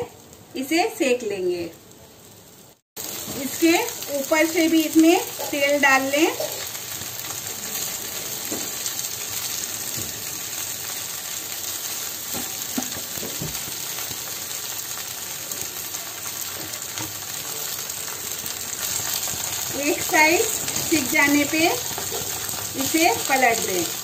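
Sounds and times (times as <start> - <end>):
hot oil sizzling: 0.0 - 24.0.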